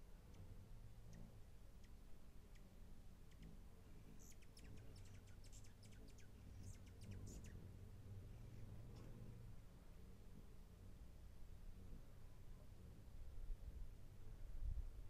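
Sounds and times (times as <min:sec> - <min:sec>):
hummingbird chip notes: 0:00.0 - 0:09.5
hummingbird chittering clicks: 0:00.2 - 0:07.6.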